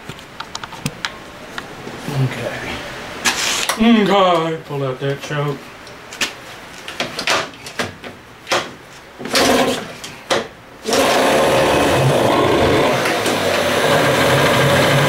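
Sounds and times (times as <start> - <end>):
starter rope pulls: 9.2 - 9.9
outboard engine running: 10.9 - 15.0.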